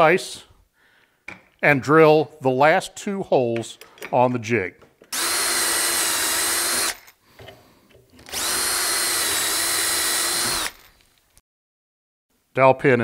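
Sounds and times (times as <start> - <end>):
cordless drill boring into wood: 5.1 - 7.1, 8.2 - 11.0.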